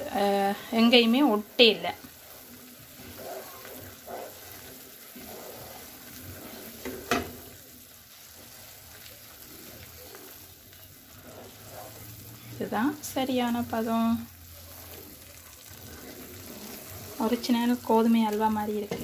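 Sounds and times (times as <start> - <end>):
faint sizzling: 0.0 - 19.0
wooden spoon stirring in pan: 0.0 - 19.0.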